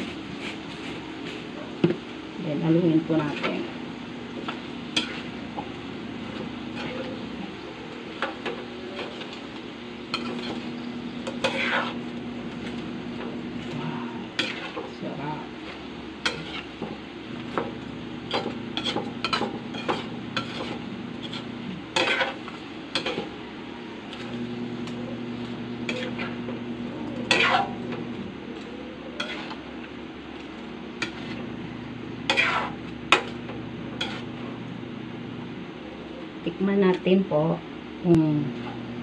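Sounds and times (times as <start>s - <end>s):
faint sizzle: 0.0s - 39.0s
low steady hum: 0.0s - 39.0s
metal spatula scraping a wok: 3.1s - 3.6s, 4.9s - 5.4s, 6.2s - 7.4s, 8.1s - 9.5s, 10.1s - 15.0s, 15.6s - 16.9s, 18.3s - 23.4s, 25.8s - 26.5s, 27.2s - 27.9s, 28.5s - 29.7s, 31.0s - 31.4s, 32.3s - 33.4s, 34.0s - 34.4s.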